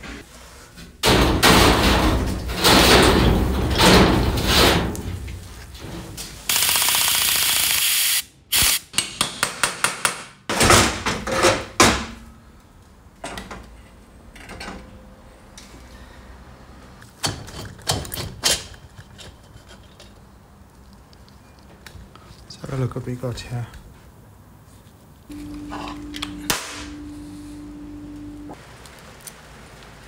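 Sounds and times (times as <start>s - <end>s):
tool knocks and clatter: 1.0s - 6.2s, 17.2s - 20.2s
noisy power tool burst: 6.5s - 8.9s.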